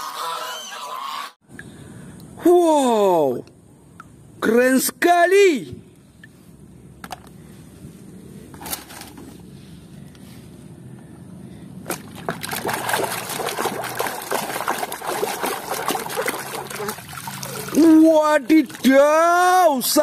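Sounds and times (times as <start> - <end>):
hands splashing in water tub: 11.8 - 19.5.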